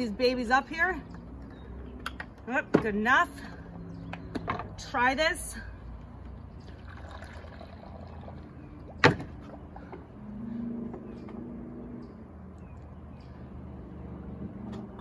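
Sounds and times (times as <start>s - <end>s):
coffee pouring: 6.6s - 9.1s.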